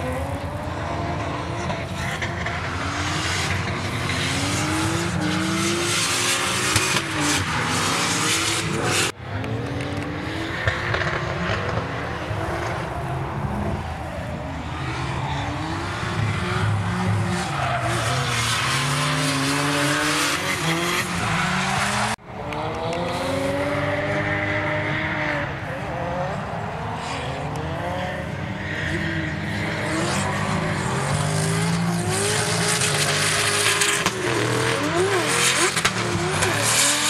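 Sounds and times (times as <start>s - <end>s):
car engines revving: 0.0s - 37.0s.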